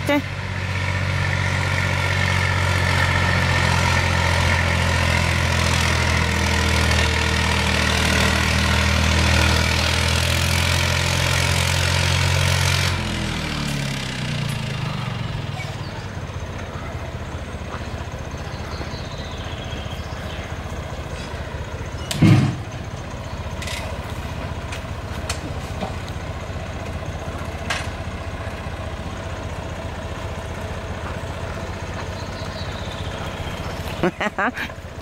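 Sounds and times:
tractor engine running: 0:00.0 - 0:35.0
heavy thud: 0:22.2 - 0:22.7.

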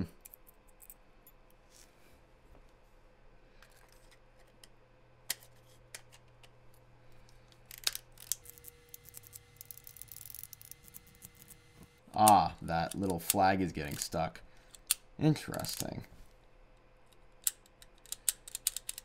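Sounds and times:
metal lens parts clicking: 0:17.1 - 0:19.0.

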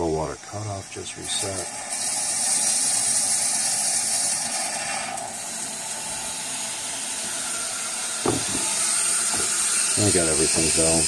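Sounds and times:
water hissing through valve: 0:01.1 - 0:11.0
short knock: 0:08.2 - 0:09.7.

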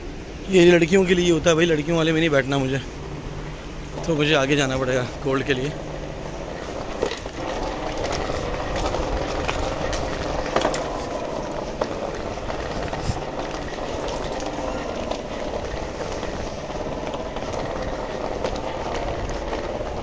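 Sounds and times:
train humming and rumbling: 0:00.0 - 0:20.0.

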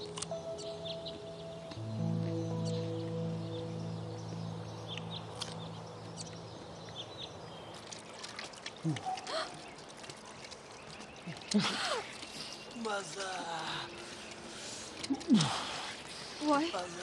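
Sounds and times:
background music: 0:00.0 - 0:08.0
water trickling from taps: 0:04.7 - 0:17.0
people gasping: 0:08.8 - 0:09.7.

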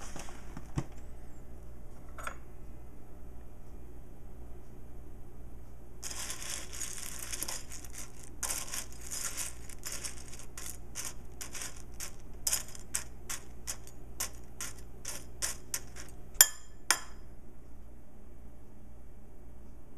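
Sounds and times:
spoon stirring dry cereal: 0:06.0 - 0:17.0
spoon clinking against bowl: 0:08.4 - 0:17.2.

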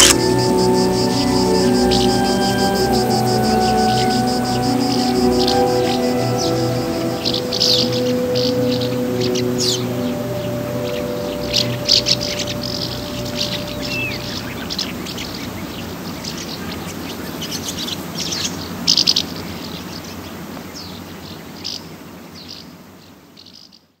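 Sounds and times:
held music notes: 0:00.0 - 0:15.6
birds chirping and calling: 0:00.0 - 0:19.3
steady hiss: 0:00.0 - 0:23.4.

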